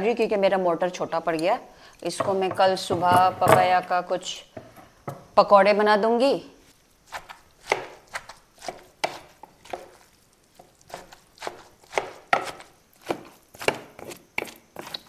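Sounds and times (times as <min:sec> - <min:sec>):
pestle pounding in wooden mortar: 0:07.1 - 0:15.0.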